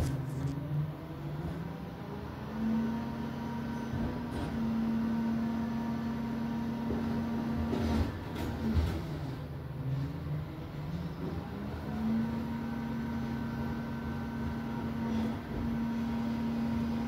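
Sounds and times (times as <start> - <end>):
garbage truck engine: 0.0 - 17.0
hydraulic compactor whine: 11.0 - 17.0.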